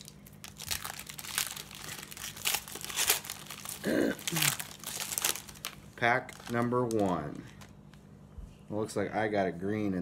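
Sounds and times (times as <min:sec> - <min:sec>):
foil wrappers crinkling and tearing: 0:00.0 - 0:07.8.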